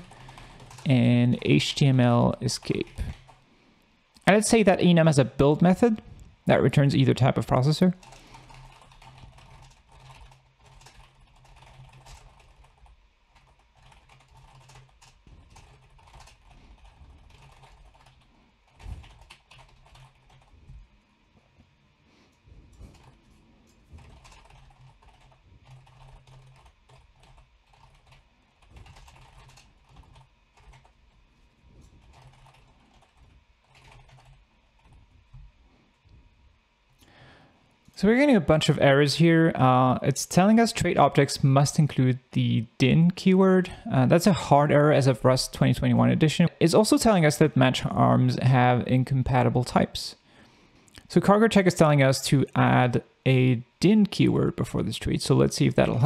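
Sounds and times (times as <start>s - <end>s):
faint keyboard typing: 0.0s - 3.5s, 5.7s - 21.7s, 22.3s - 36.2s.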